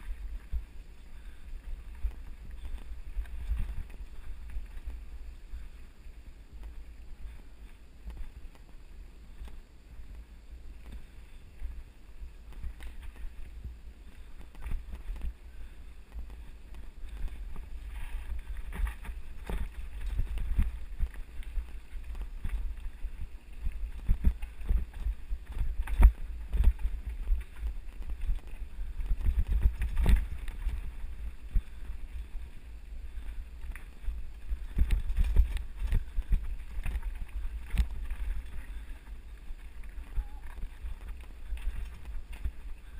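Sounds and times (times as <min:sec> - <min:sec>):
wind buffeting microphone: 0:10.4 - 0:42.9.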